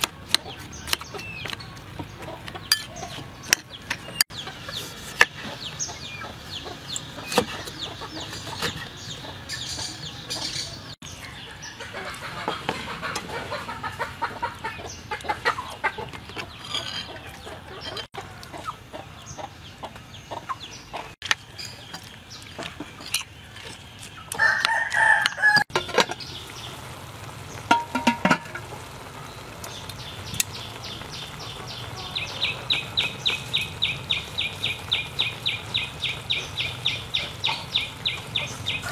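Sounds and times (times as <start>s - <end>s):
chickens clucking: 0.0s - 38.9s
rooster crowing: 24.4s - 25.7s.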